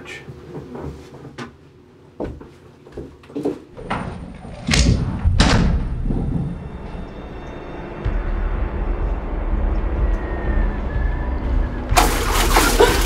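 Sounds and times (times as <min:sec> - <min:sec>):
low rumbling drone: 0:04.2 - 0:13.0.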